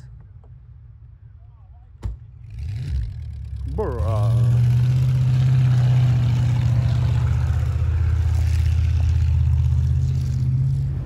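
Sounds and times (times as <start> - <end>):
truck engine running under load: 3.0 - 11.0.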